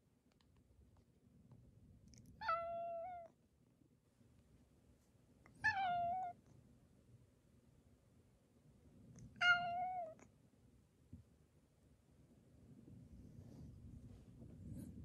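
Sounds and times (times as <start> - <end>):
cat meowing: 2.4 - 3.3, 5.6 - 6.4, 9.3 - 10.2.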